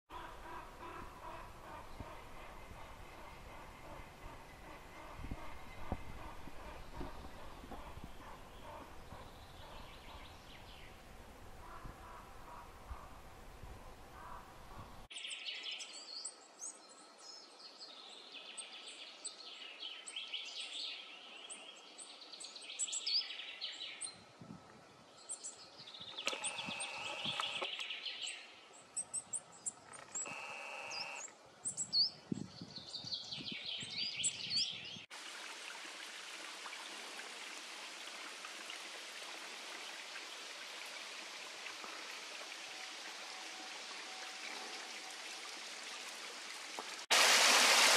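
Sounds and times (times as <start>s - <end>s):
birds chirping: 0.1s - 11.0s, 25.2s - 35.1s
stream running over rocks: 35.1s - 47.9s.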